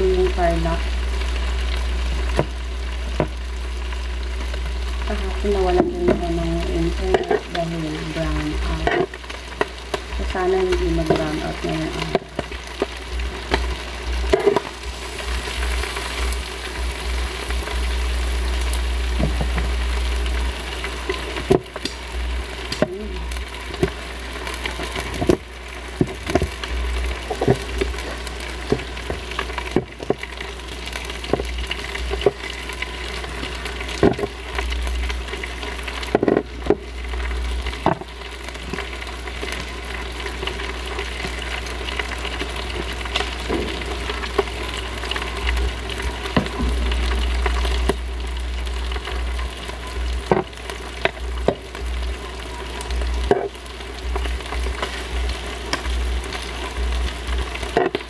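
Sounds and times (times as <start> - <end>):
squid sizzling on grill pan: 0.0 - 58.0.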